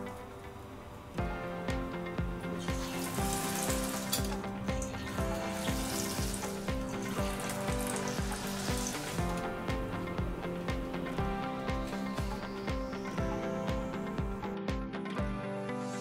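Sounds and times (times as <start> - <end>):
background music with steady beat: 0.0 - 16.0
mushrooms sizzling in hot oil: 2.6 - 9.4.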